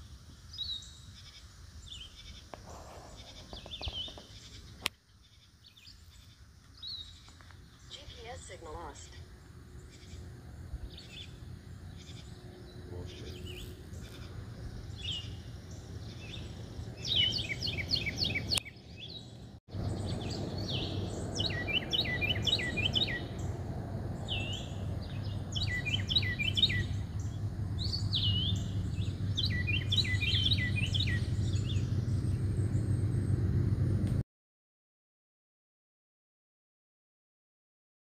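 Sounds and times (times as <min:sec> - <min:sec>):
songbirds chirping: 0:00.1 - 0:33.8
low steady rumble: 0:06.1 - 0:34.2.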